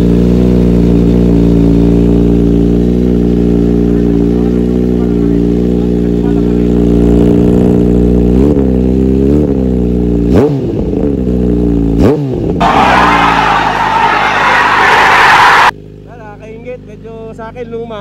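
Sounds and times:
motorcycle engine idling and revving: 0.0s - 18.0s
loud rushing noise: 12.6s - 15.7s.

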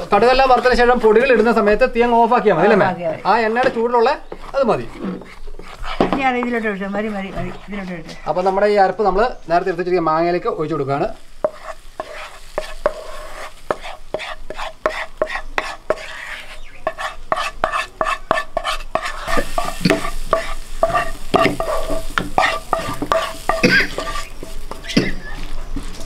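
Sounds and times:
spoon scraping a pan: 2.6s - 8.8s, 11.4s - 25.4s
stirring food in a plastic bowl: 3.2s - 9.0s, 11.4s - 25.1s.

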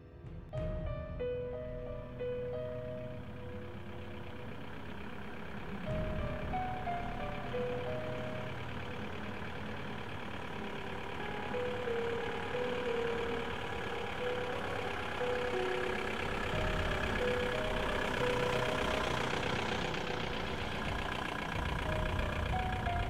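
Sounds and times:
slow background music: 0.0s - 23.0s
car engine rumble: 0.6s - 23.0s.

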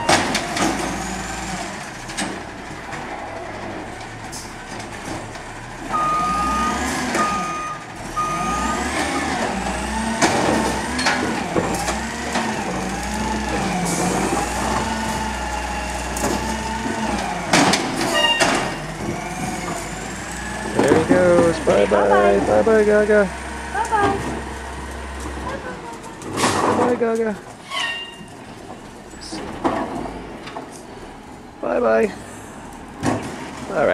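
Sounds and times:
diesel engine running: 0.0s - 27.6s
long beeps: 5.9s - 8.7s.

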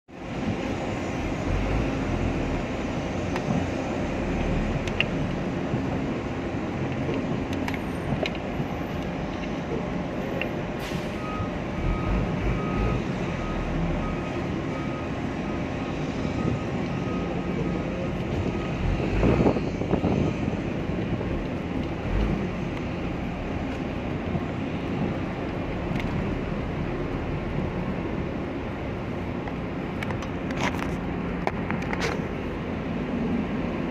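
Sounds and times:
heavy vehicle engines rumbling: 0.1s - 33.9s
reversing alarm beeping: 10.2s - 20.4s.

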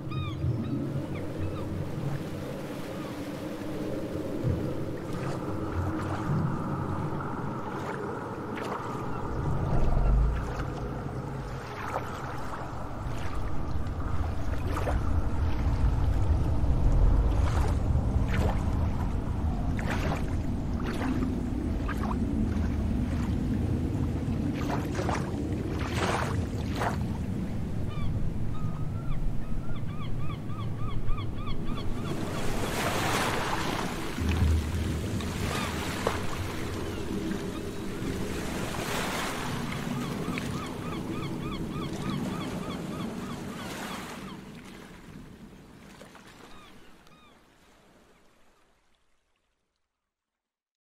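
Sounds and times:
waves rumbling: 0.0s - 48.6s
sea water washing: 0.1s - 27.8s, 31.8s - 48.1s
deep rumble: 9.1s - 11.7s, 12.8s - 25.2s.

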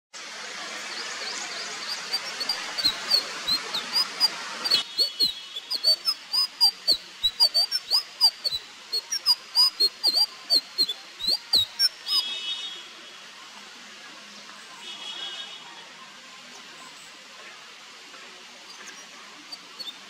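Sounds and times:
steady hiss: 0.2s - 20.0s
bird singing high twisting notes: 1.8s - 12.2s.

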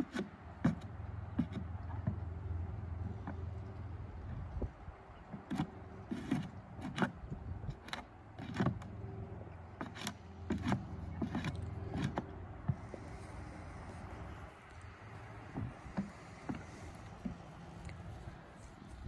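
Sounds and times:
sharp knocks and clicks: 0.0s - 3.9s, 5.3s - 13.3s, 15.3s - 18.1s
steady low hum: 0.0s - 19.0s.

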